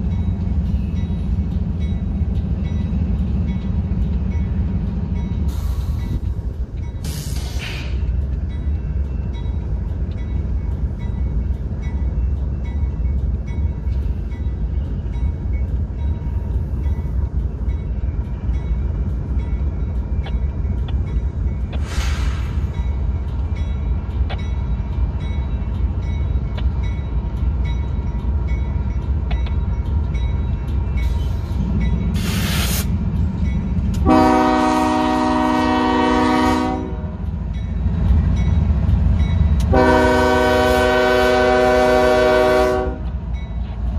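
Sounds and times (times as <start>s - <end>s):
diesel locomotive rumble: 0.0s - 43.9s
train air horn blast: 34.0s - 37.2s, 39.7s - 43.0s.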